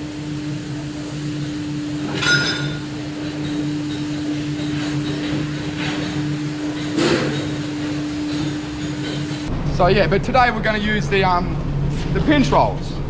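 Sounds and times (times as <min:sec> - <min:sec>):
electric machine drive humming: 0:00.0 - 0:13.0
high-pitched metallic sound: 0:02.0 - 0:03.1.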